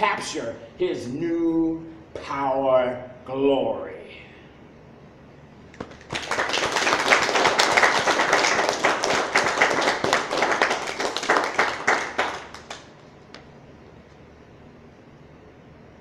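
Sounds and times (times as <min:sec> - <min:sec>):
audience applauding: 0:05.8 - 0:13.1.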